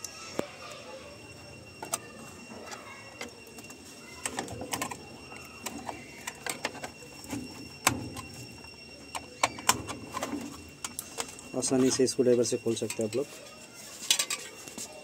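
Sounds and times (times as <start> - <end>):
plastic and metal panels rattling: 1.8 - 13.3.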